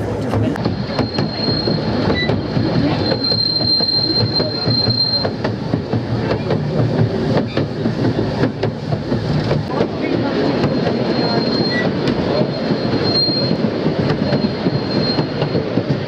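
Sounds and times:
train wheels clicking over rails: 0.0s - 16.0s
high wheel squeal: 0.6s - 5.5s, 10.4s - 16.0s.

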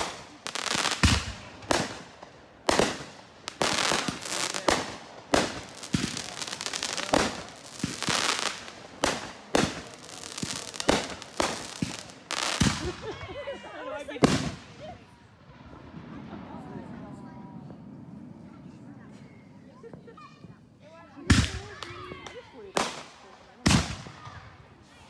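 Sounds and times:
fireworks bangs: 0.0s - 13.5s, 14.1s - 24.7s
crackling fireworks stars: 0.0s - 25.0s.

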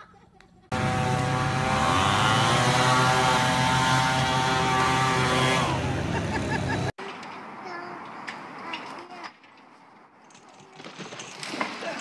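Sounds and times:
leaf blower motor running: 0.7s - 6.9s.

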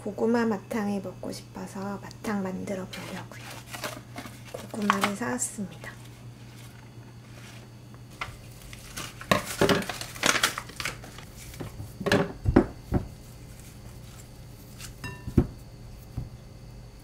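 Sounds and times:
plastic mesh bag crinkling: 3.0s - 5.2s, 5.9s - 11.7s.

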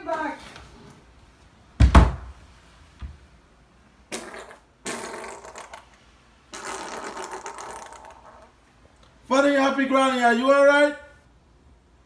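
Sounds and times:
sputtering fart: 4.1s - 8.6s.

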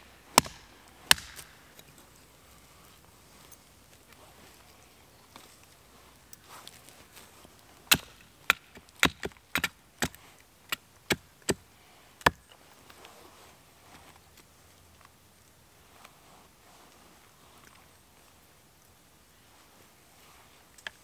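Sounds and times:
hatchet chopping wood: 0.3s - 1.6s, 7.9s - 11.6s, 12.2s - 12.5s.

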